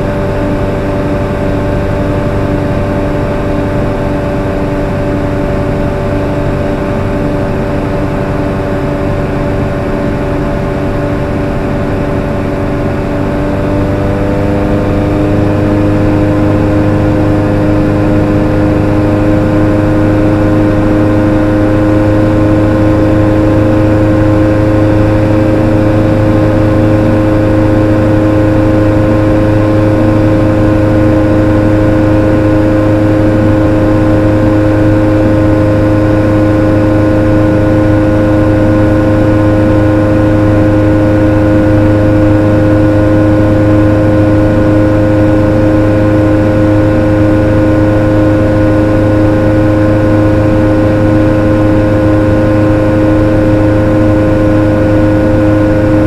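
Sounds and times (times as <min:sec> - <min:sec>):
light aircraft engine drone: 0:00.0 - 0:56.0.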